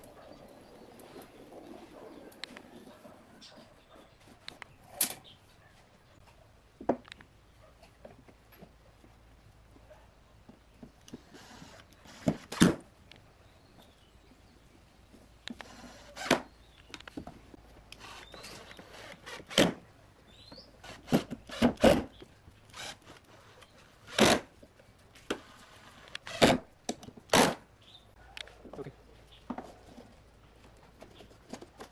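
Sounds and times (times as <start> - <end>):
cordless drill driving screws: 22.7 - 23.2.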